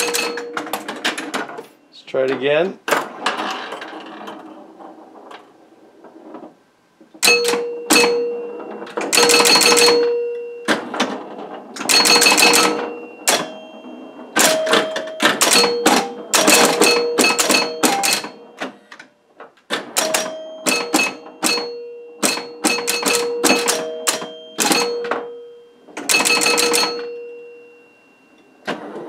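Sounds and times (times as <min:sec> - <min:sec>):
pinball machine relay clatter: 0:00.0 - 0:27.7
bell-like chime tones: 0:11.9 - 0:18.6, 0:20.1 - 0:28.7.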